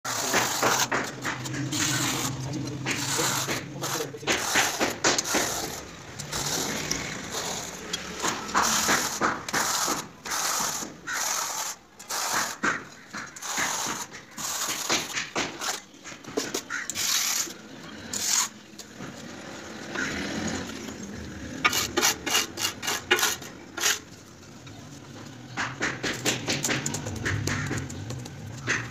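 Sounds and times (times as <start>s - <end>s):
trowel scraping mortar: 0.1s - 18.6s, 21.6s - 24.2s.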